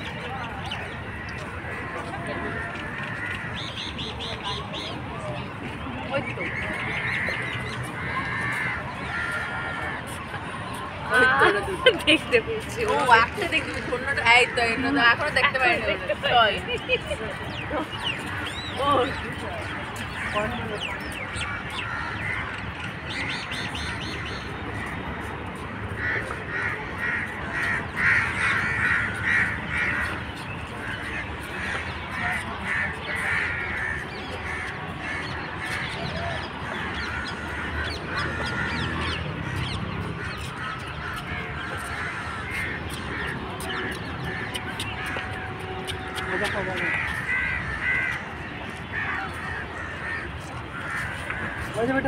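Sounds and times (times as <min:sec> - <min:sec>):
crows cawing: 0:01.1 - 0:04.0, 0:06.5 - 0:10.2, 0:18.1 - 0:25.0, 0:25.9 - 0:52.0.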